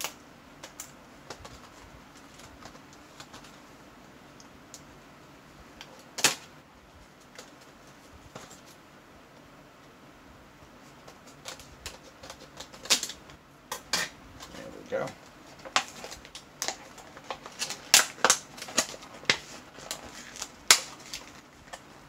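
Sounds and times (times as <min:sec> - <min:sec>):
plastic box clicking and snapping: 0:11.0 - 0:13.9.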